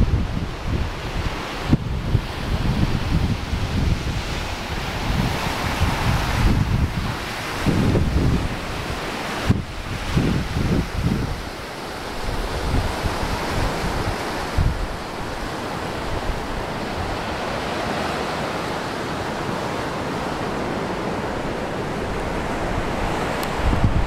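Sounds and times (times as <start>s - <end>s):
surf breaking on shore: 0.0s - 24.0s
wind buffeting microphone: 0.0s - 24.0s.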